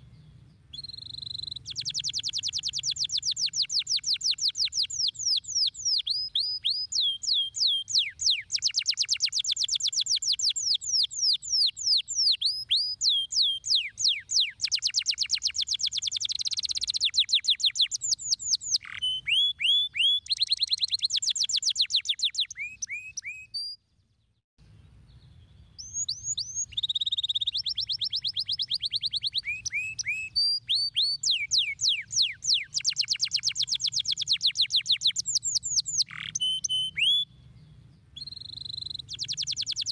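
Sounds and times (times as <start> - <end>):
canary singing trills: 0.0 - 23.8, 25.1 - 39.9.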